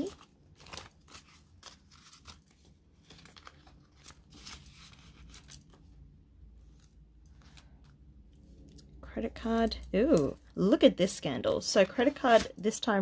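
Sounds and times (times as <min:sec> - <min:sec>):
banknotes rustling and crinkling: 0:00.0 - 0:10.8, 0:11.6 - 0:12.9.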